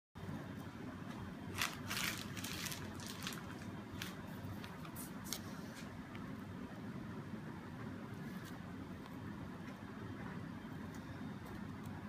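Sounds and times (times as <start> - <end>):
steady low hum: 0.2 - 12.0
piping bag crinkling: 1.5 - 5.5.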